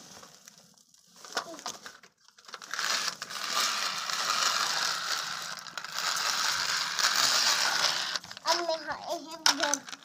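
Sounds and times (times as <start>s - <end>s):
plastic rustling: 0.0s - 10.0s
toy tractor scraping on concrete: 2.5s - 10.0s.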